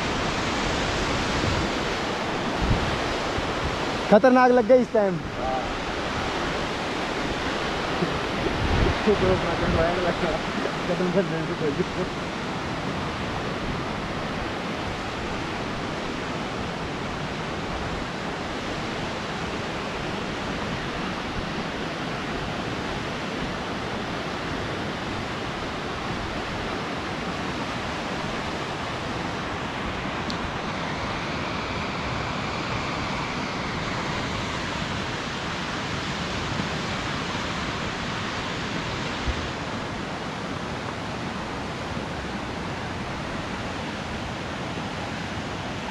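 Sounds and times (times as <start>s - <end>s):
whitewater rushing: 0.0s - 45.9s.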